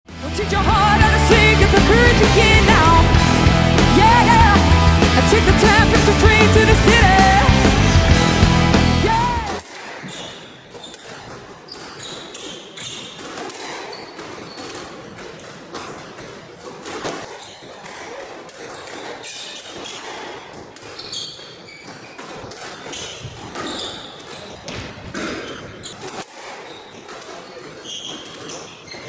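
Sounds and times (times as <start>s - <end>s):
rackets hitting squash ball: 9.0s - 29.0s
shoes squeaking on wooden floor: 9.9s - 15.9s, 16.6s - 18.0s, 18.6s - 29.0s.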